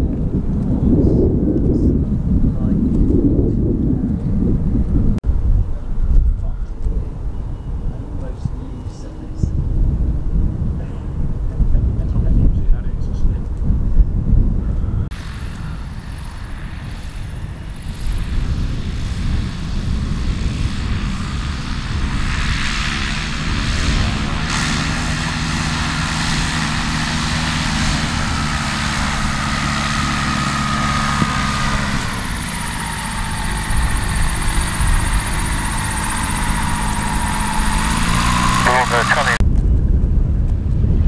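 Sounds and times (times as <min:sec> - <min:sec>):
propeller aircraft engine drone: 0:14.3 - 0:41.0.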